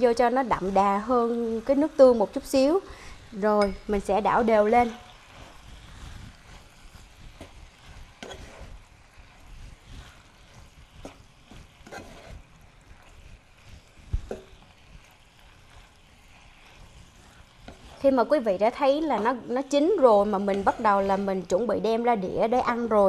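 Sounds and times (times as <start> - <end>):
wooden spoon scraping a pan: 0.0 - 23.0
spoon knocking on pan: 14.2 - 14.6.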